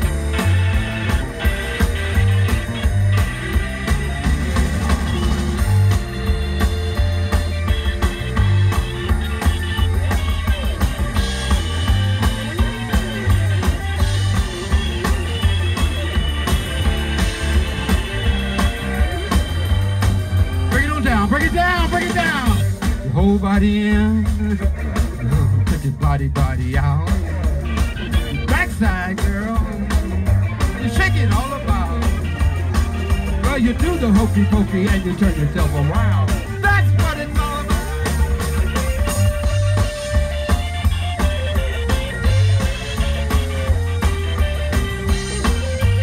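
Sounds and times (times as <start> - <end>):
drum kit beat: 0.0 - 46.0
guitar: 0.0 - 46.0
heavy bass line: 0.0 - 46.0.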